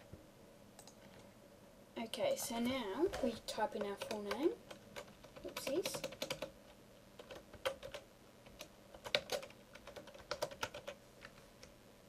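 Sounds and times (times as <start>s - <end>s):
keyboard typing: 0.8s - 1.0s, 3.0s - 6.6s, 7.2s - 11.7s.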